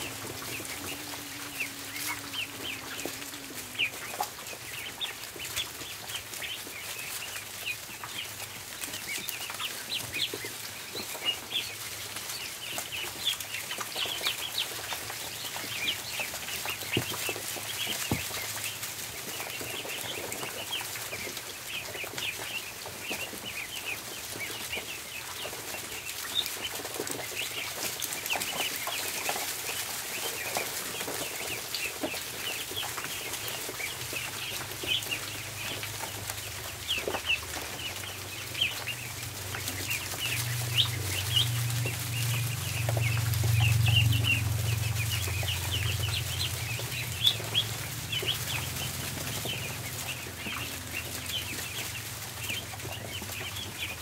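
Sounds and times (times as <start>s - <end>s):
low hum: 0.0s - 8.1s, 33.7s - 52.5s
ducklings peeping: 0.0s - 54.0s.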